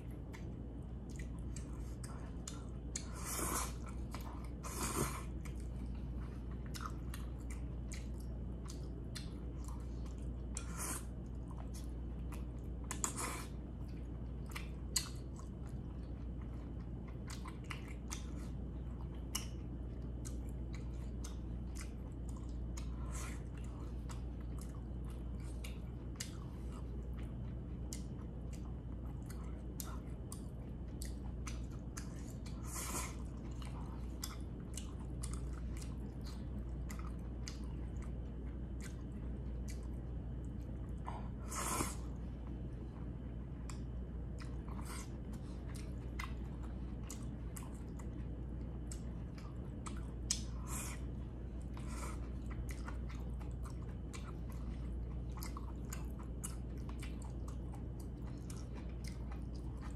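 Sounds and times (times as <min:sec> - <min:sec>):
steady low hum: 0:00.0 - 0:59.9
person chewing with mouth clicks: 0:00.1 - 0:59.9.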